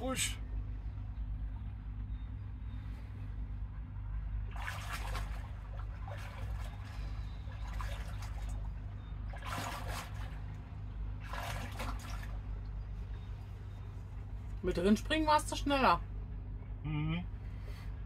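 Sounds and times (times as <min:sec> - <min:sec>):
water splashing: 0:04.5 - 0:12.8.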